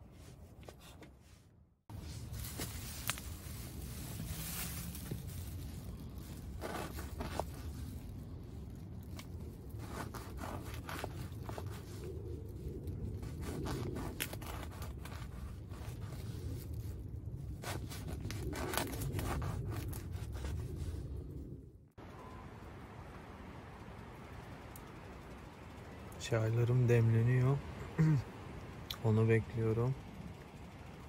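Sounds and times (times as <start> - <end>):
steady low rumble: 1.6 - 31.0
plastic bags rustling: 1.9 - 9.1
knife sawing through bread: 9.8 - 12.0, 17.6 - 20.7.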